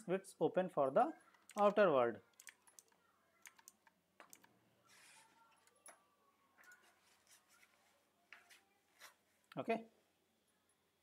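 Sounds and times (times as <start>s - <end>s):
faint clicks: 2.4s - 4.6s.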